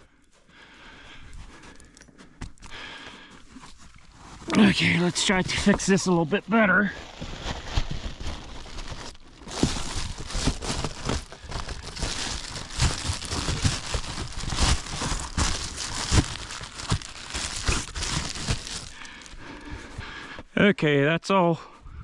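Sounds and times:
foil insulation crinkling: 3.8s - 19.7s.

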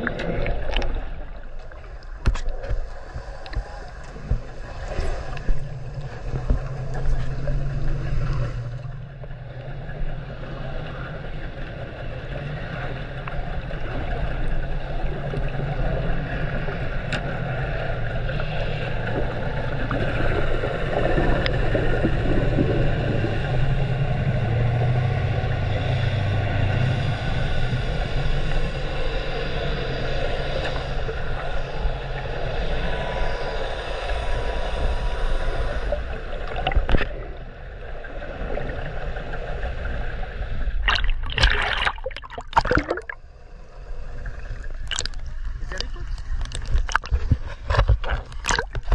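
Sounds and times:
boat engines humming underwater: 0.0s - 48.9s
water noise hiss: 14.8s - 48.9s.

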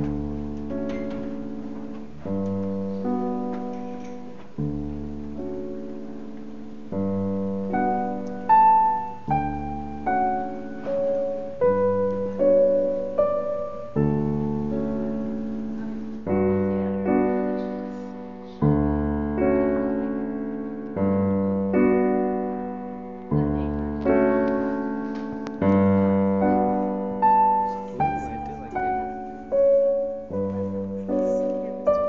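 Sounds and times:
slow solo piano piece: 0.0s - 32.0s.

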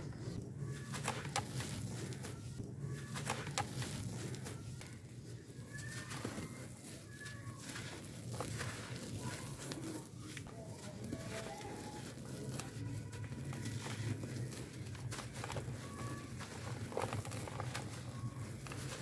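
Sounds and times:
charcoal crumbling and pouring: 5.7s - 19.0s.

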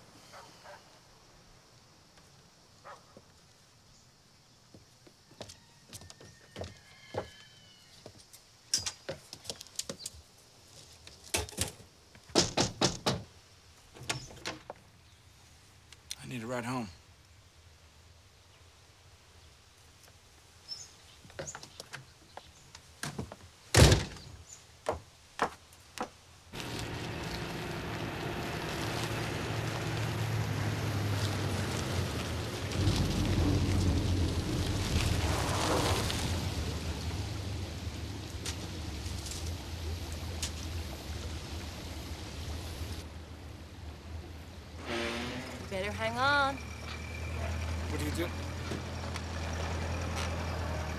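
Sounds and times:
light footsteps and taps: 9.0s - 11.4s
car engine running: 26.6s - 34.5s.

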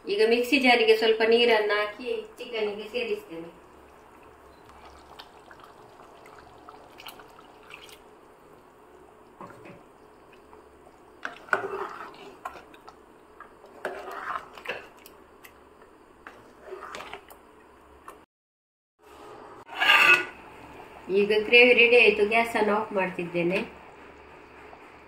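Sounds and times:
ladle stirring thick gravy: 3.6s - 17.6s.

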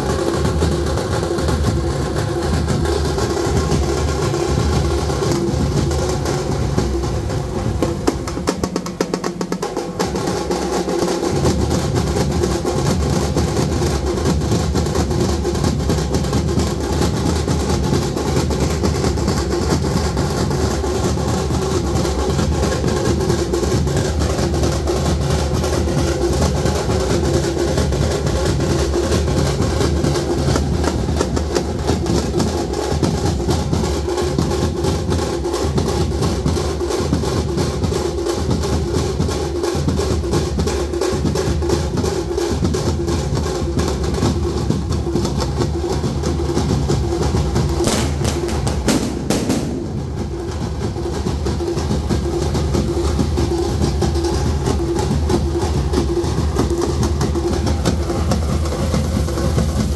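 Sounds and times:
frame drums struck with sticks: 0.0s - 59.9s
large bass drum: 0.0s - 59.9s.

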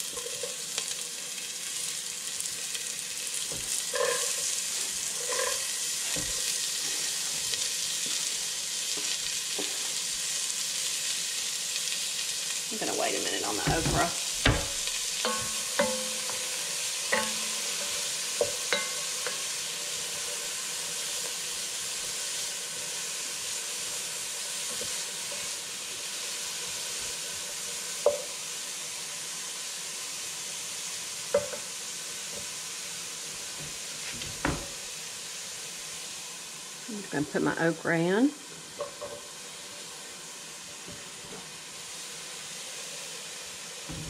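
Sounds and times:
vegetables sizzling in a pot: 0.0s - 44.0s
wooden spoon knocking against pot: 13.6s - 16.4s, 17.2s - 17.6s.

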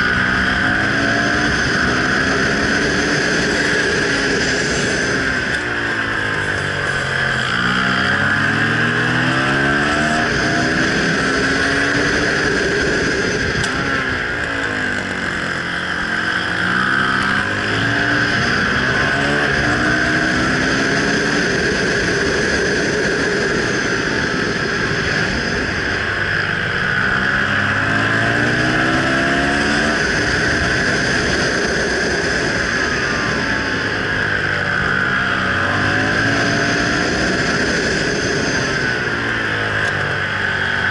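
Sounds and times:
motorcycle engine revving through gears: 0.0s - 40.9s
wind rush: 0.0s - 40.9s.

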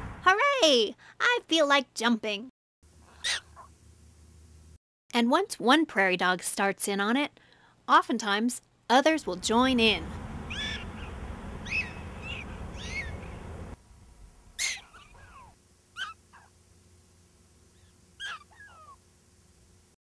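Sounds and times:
prairie dogs yipping: 3.2s - 3.7s, 10.4s - 13.6s, 14.6s - 16.6s, 17.7s - 19.0s
low rushing noise: 9.4s - 14.6s.

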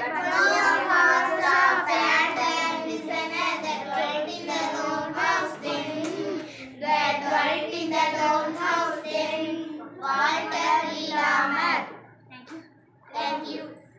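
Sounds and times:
girls reciting poem in unison: 0.0s - 12.1s.

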